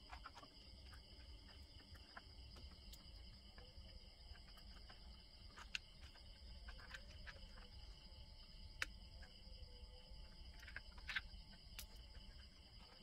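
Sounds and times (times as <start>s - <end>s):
faint insect chirring: 0.0s - 13.0s.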